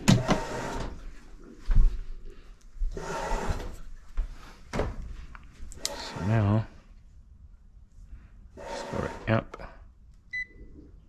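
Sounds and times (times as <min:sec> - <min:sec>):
knocks and rustles: 0:03.5 - 0:05.3.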